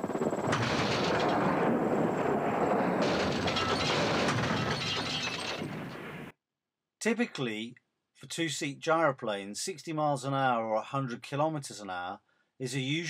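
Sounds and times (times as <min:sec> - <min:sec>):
helicopter crash impact: 0:00.1 - 0:06.3.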